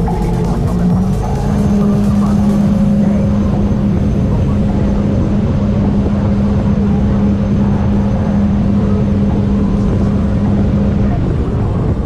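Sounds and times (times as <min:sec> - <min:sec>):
jet ski engine running flat out: 0:00.0 - 0:12.0
rush of wind and water: 0:00.0 - 0:12.0.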